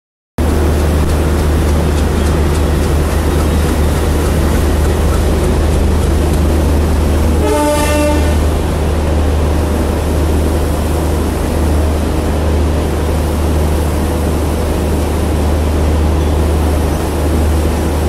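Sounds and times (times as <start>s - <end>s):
passenger train rumbling past: 0.4s - 18.0s
train horn blast: 7.2s - 8.7s.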